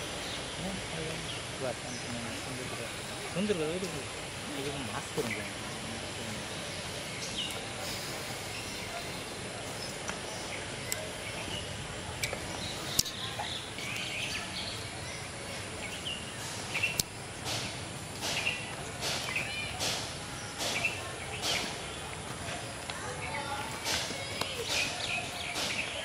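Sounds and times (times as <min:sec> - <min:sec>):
steady background hiss: 0:00.0 - 0:26.0
sharp clicks: 0:12.2 - 0:13.2, 0:16.8 - 0:21.7.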